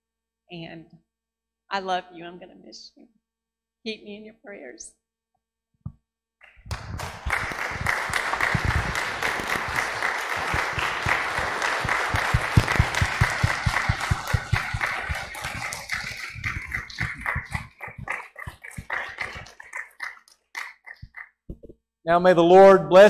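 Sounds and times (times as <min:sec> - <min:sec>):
close single person clapping: 0:06.4 - 0:18.1
crowd applauding: 0:06.4 - 0:21.2.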